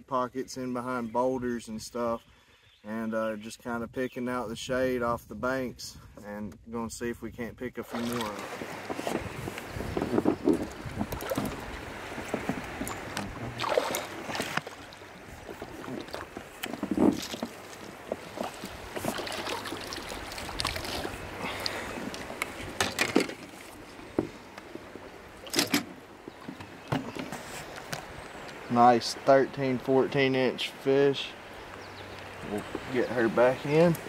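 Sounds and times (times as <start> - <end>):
water splashing and dripping: 7.9 - 29.3.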